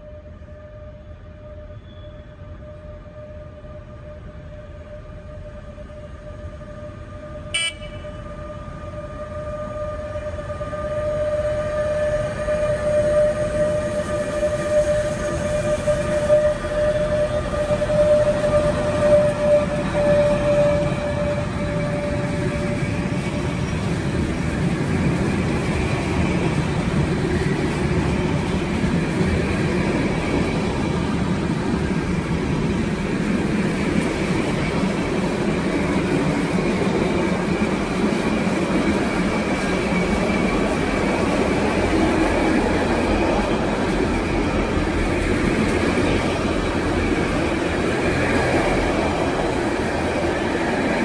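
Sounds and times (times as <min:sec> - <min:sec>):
train wheels rumbling on rails: 0:00.0 - 0:51.0
high steady tone: 0:07.6 - 0:08.2.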